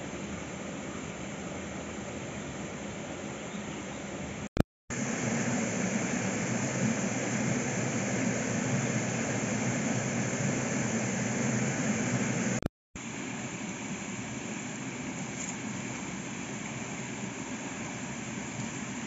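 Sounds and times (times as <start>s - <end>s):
steady rushing noise: 4.9s - 19.0s.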